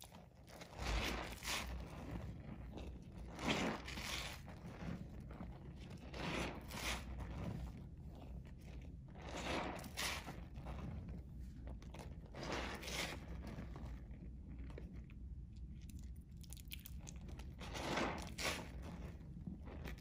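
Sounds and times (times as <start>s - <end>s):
hand squishing wet soap: 0.0s - 20.0s.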